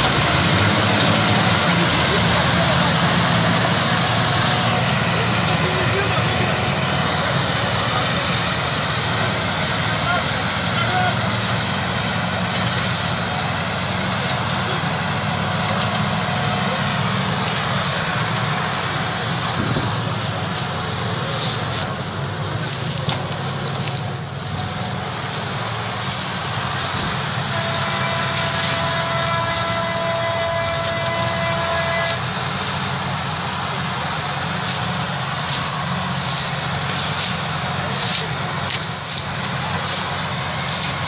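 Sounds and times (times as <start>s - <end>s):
steady high whine: 0.0s - 41.0s
tractor diesel engines under load: 0.0s - 41.0s.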